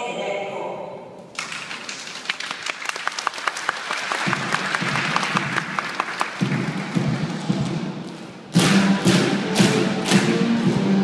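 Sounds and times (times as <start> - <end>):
audience applauding: 1.4 - 7.8.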